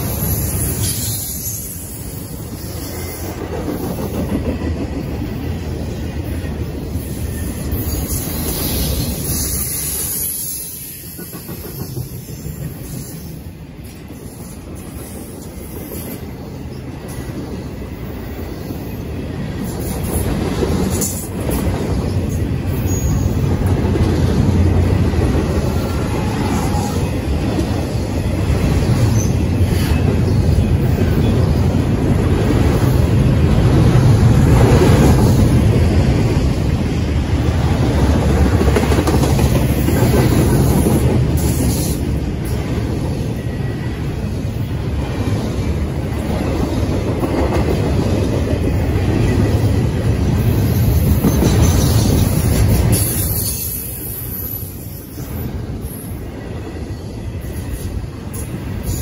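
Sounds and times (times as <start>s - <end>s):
freight train rumble: 0.0s - 59.0s.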